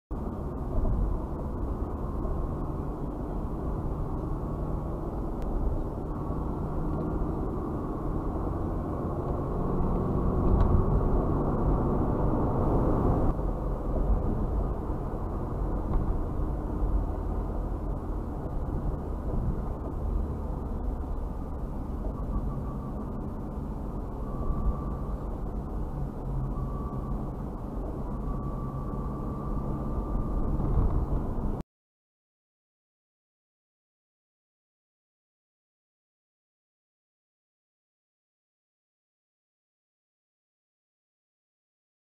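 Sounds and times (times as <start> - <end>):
muffled car road and engine noise: 0.1 - 31.6.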